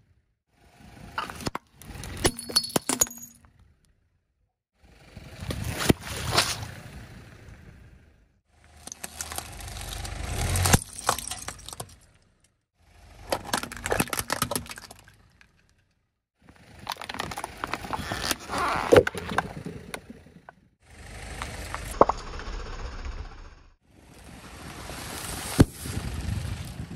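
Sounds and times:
tyre crushing objects on asphalt: 0:08.7 - 0:12.2, 0:13.1 - 0:15.6.

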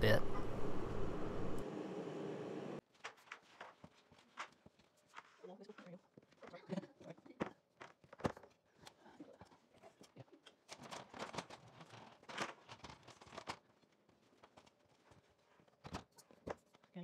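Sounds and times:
clicks and knocks of handling: 0:07.4 - 0:16.9.

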